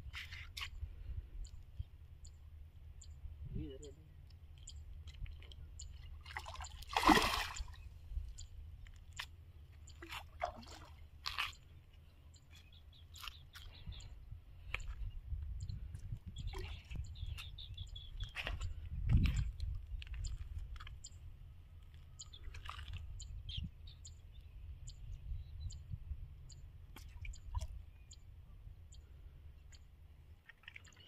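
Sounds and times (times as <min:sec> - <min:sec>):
low steady rumble: 0:00.8 - 0:06.6
splash in water: 0:06.2 - 0:07.8.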